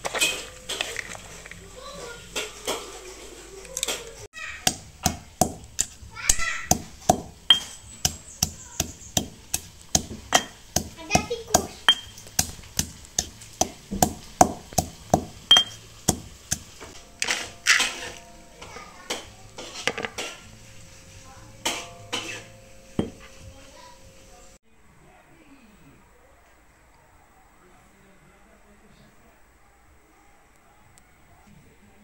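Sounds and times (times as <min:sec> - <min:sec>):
pestle pounding in stone mortar: 0:04.6 - 0:18.1, 0:23.0 - 0:23.2.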